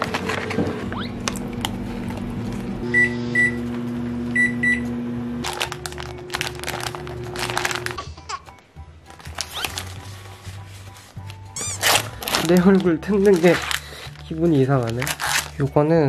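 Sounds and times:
microwave oven humming: 0.0s - 8.0s
plastic wrapper crinkling: 5.4s - 8.1s, 9.1s - 15.8s.

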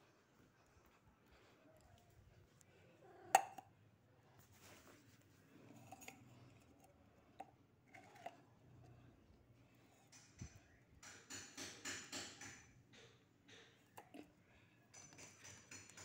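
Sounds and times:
plastic spoon scraping metal can: 7.9s - 8.5s.

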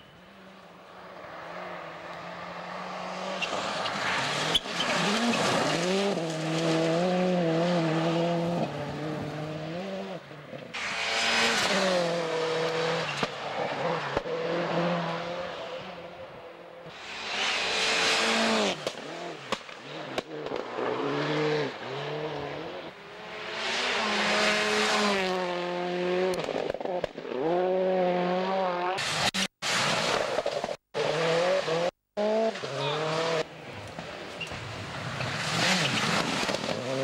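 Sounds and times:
cars rushing past: 0.2s - 37.0s
rally car engines revving: 0.5s - 37.0s
sharp cracks: 18.8s - 20.8s.

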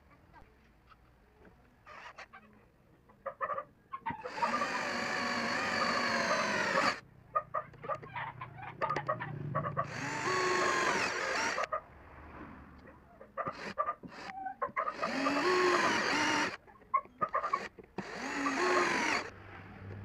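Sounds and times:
cordless drill whining: 4.2s - 7.0s, 9.9s - 11.7s, 13.5s - 16.6s, 17.4s - 19.3s.

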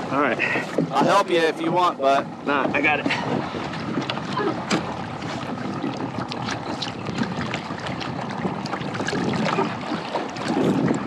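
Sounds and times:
water sloshing against a kayak: 0.0s - 11.0s
small splashes and knocks: 3.6s - 11.0s.

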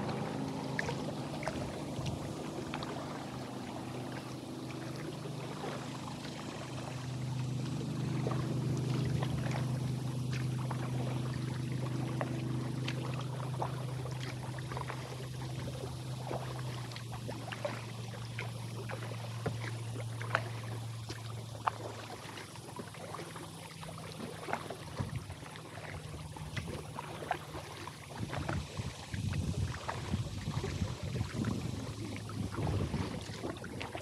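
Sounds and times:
paddle drips and splashes: 0.0s - 34.0s
steady low hum: 0.0s - 34.0s
water splashing against hull: 0.0s - 34.0s
wind buffeting microphone: 28.2s - 34.0s.

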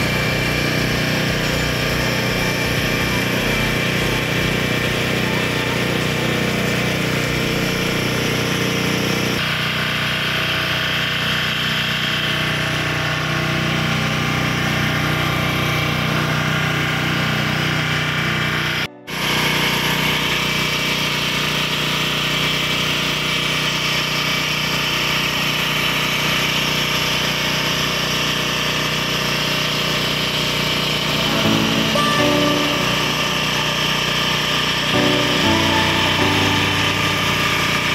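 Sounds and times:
portable generator engine running: 0.0s - 22.2s.

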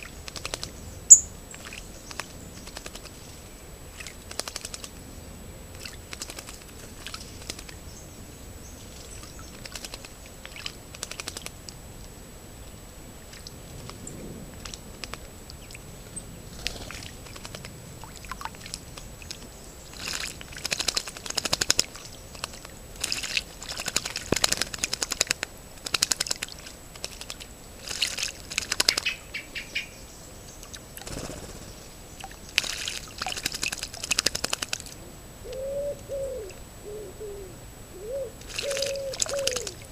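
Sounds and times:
birds splashing in water: 0.0s - 5.0s, 5.7s - 11.8s, 16.5s - 29.2s, 30.6s - 35.0s, 38.4s - 39.9s.

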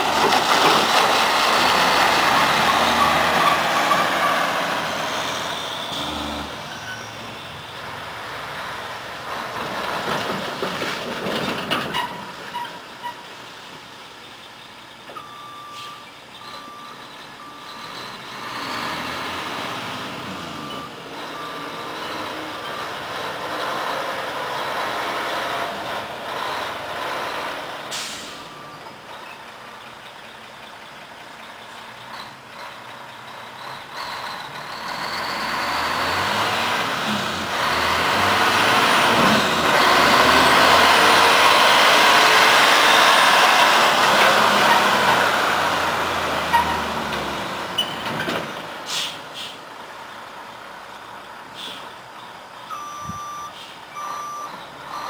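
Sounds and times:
diesel truck engine: 0.0s - 55.0s
truck reversing alarm beeps: 2.2s - 7.3s, 15.1s - 23.1s, 26.4s - 29.4s, 52.6s - 55.0s.

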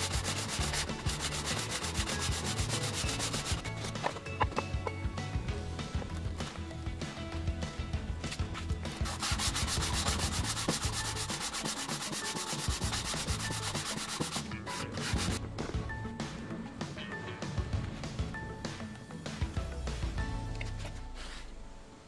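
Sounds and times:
sandpaper rubbing on metal: 0.0s - 4.1s, 8.3s - 15.4s.

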